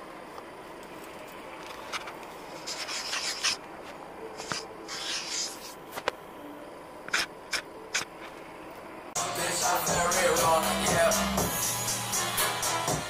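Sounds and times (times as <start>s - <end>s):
hand rubbing against camera: 4.4s - 5.8s.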